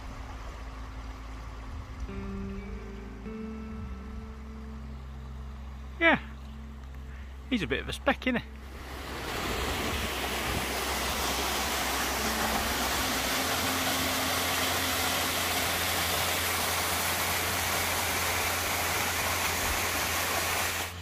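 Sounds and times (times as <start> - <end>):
waterfall rushing into rock pool: 8.7 - 21.0.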